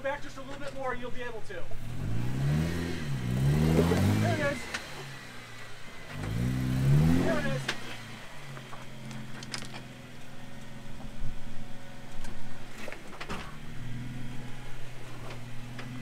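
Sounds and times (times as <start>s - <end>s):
off-road vehicle engine crawling: 0.0s - 16.0s
sharp clicks and knocks: 8.6s - 9.9s.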